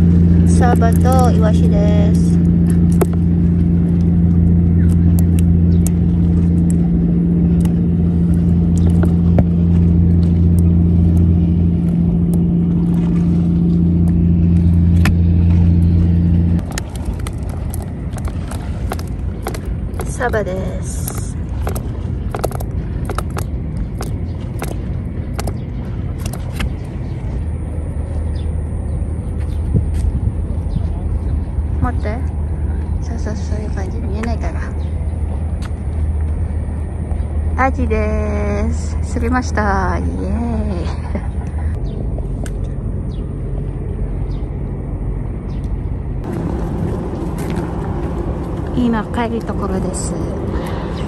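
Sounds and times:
wind rumble on microphone: 0.0 - 51.0
sharp clicks and taps: 16.6 - 25.6.

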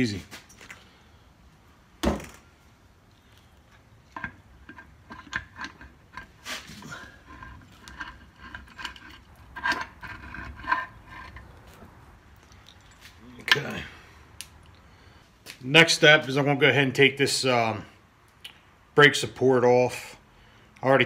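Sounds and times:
small metal clinks and scrapes: 3.2 - 13.7.

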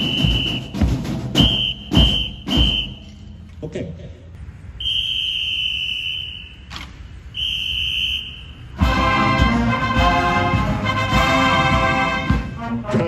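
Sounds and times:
brass marching band: 0.0 - 3.3, 7.4 - 13.0
high whistle blasts: 0.0 - 3.4, 4.7 - 8.8.

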